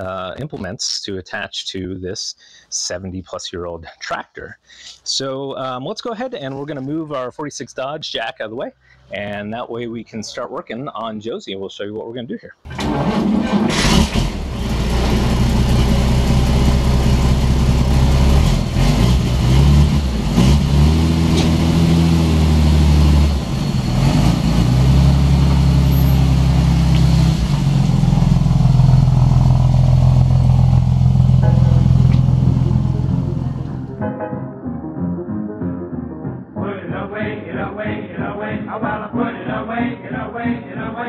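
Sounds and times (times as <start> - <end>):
truck engine revving: 12.7 - 34.0.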